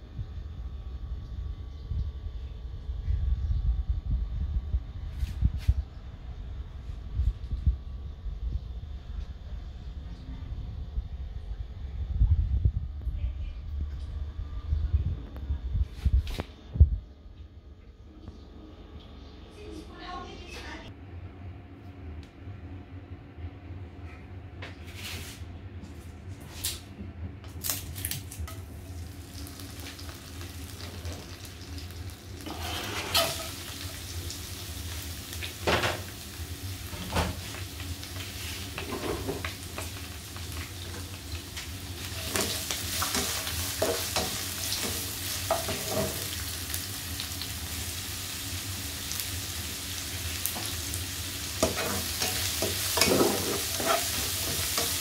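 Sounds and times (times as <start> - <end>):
oil crackling in wok: 27.6 - 55.0
onion sizzling in pan: 27.6 - 55.0
spatula scraping pan: 32.4 - 33.6, 51.6 - 55.0.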